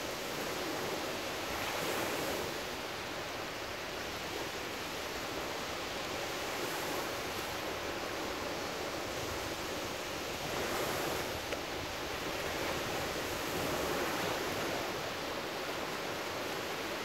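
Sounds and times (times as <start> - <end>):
ocean waves breaking: 6.3 - 17.0.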